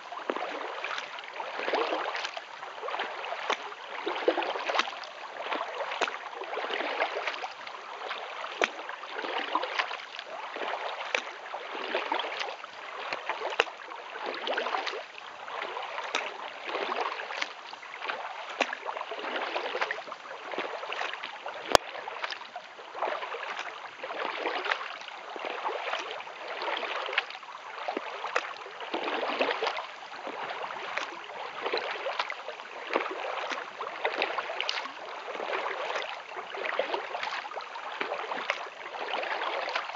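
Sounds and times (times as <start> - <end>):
paddle strokes splashing water: 0.0 - 39.9
small sharp splashes: 0.2 - 39.9.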